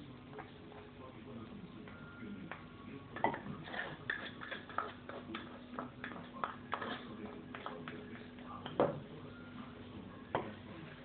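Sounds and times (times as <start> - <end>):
pestle grinding in a mortar: 3.2 - 8.3.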